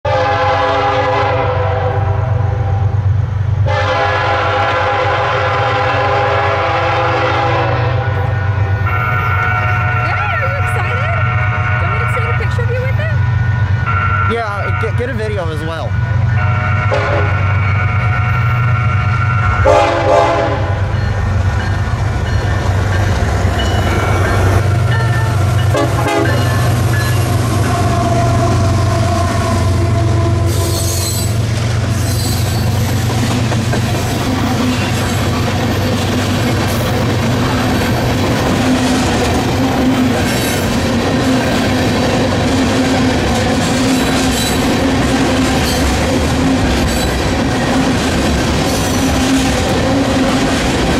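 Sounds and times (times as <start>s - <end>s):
locomotive air horn chord: 0.0s - 2.9s, 3.6s - 15.1s, 16.3s - 20.9s, 25.3s - 26.8s, 27.4s - 31.1s
diesel locomotive rumble: 0.1s - 50.9s.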